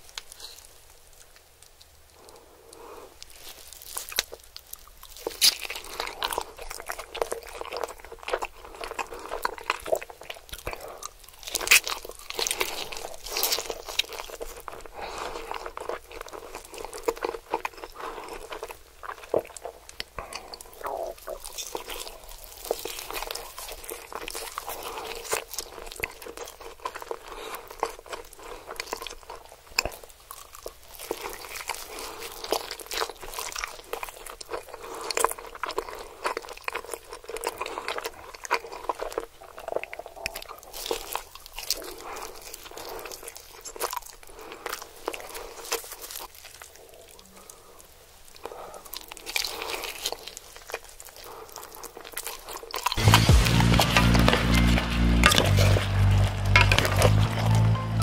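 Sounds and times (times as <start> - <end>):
crunching and wet chewing: 0.0 - 58.0.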